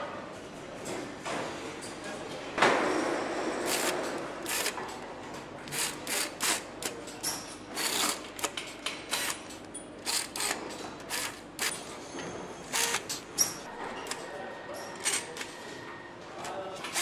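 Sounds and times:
pneumatic screwdriver hissing and clicking: 0:03.7 - 0:04.8, 0:05.7 - 0:06.7, 0:07.8 - 0:08.5, 0:09.1 - 0:09.4, 0:10.0 - 0:11.7, 0:12.7 - 0:13.1.

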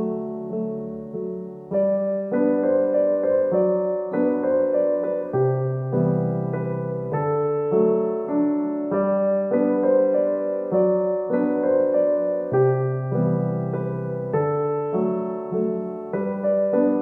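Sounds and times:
slow solo piano music: 0:00.0 - 0:17.0.

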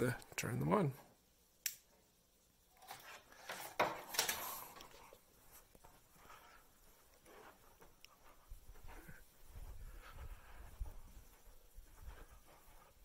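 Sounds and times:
rustling and scraping from handling: 0:02.8 - 0:13.0.

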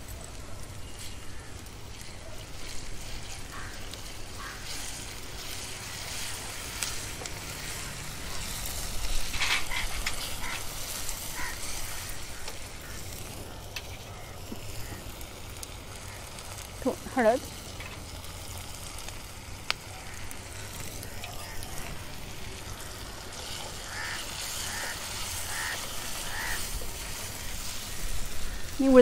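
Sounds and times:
onion sizzling in oil: 0:00.0 - 0:29.0
spatula scraping pan: 0:04.5 - 0:12.4.

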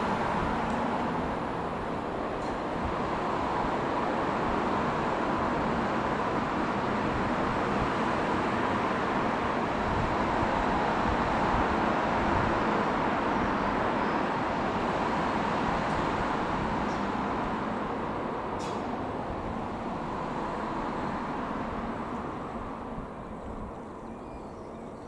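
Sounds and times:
train wheels on rails: 0:00.0 - 0:23.9
diesel train engine hum: 0:00.0 - 0:25.0.

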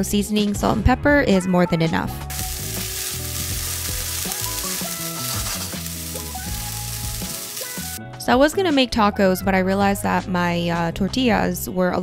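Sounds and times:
background music: 0:00.0 - 0:12.0
vegetables sizzling in a pan: 0:02.3 - 0:08.0.

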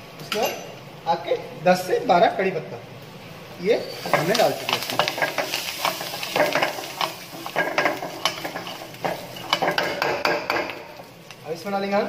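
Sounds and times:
spices sizzling in hot oil: 0:03.6 - 0:12.0
steel ladle scraping a wok: 0:03.9 - 0:10.7.

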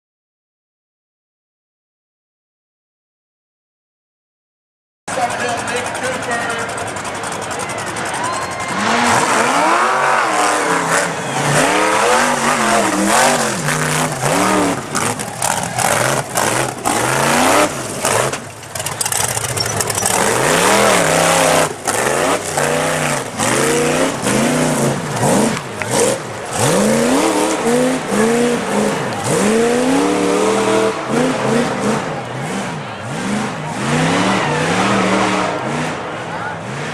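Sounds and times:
buggy engine revving hard: 0:05.6 - 0:36.9
sharp engine cracks: 0:14.2 - 0:27.7.

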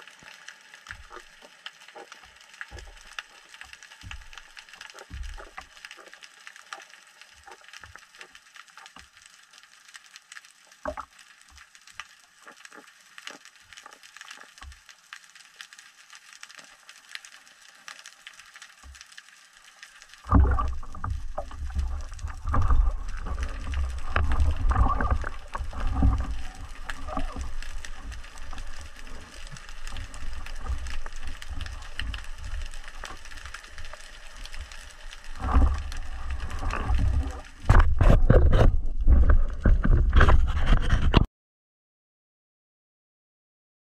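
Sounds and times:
underwater rumbling and knocking: 0:00.0 - 0:08.4, 0:10.8 - 0:11.7, 0:20.0 - 0:41.3
faint underwater clicks: 0:00.0 - 0:41.2.

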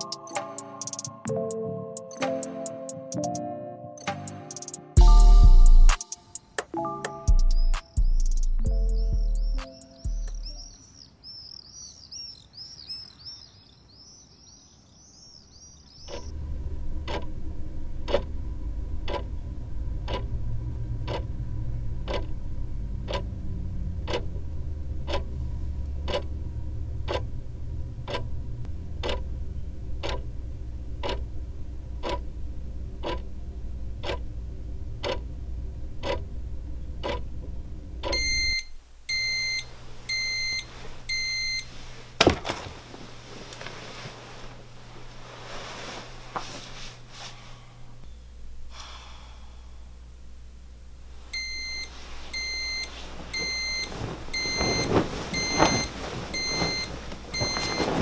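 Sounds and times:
clock ticking: 0:04.0 - 0:10.7, 0:17.0 - 0:17.3, 0:18.0 - 0:18.4, 0:19.0 - 0:30.3, 0:30.9 - 0:40.6
alarm clock beeping: 0:05.0 - 0:05.9, 0:38.0 - 0:41.7, 0:51.4 - 0:58.0
birdsong: 0:07.3 - 0:16.3
low hum: 0:16.1 - 0:42.1.

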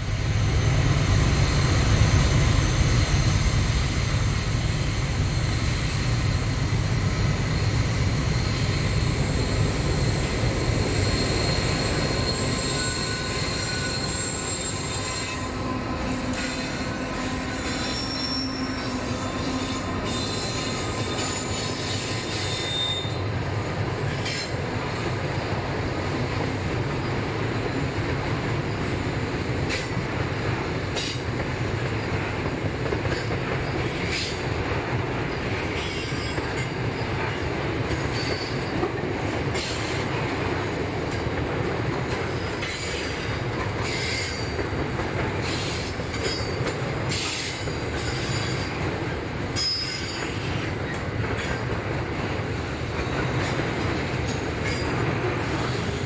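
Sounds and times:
wheel squeal: 0:00.2 - 0:23.2, 0:38.1 - 0:38.7, 0:49.6 - 0:51.6.

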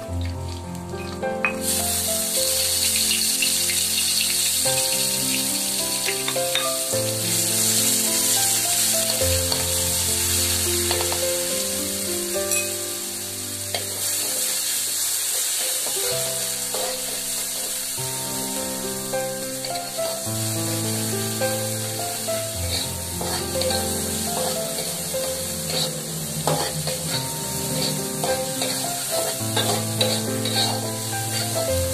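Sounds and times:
background music: 0:00.0 - 0:31.9
oil sizzling in a wok: 0:00.0 - 0:31.9
spatula stirring: 0:16.7 - 0:17.2, 0:22.6 - 0:31.6.

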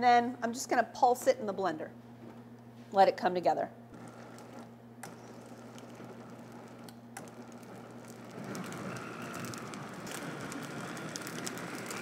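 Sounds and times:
blender motor churning liquid: 0:04.0 - 0:12.0.

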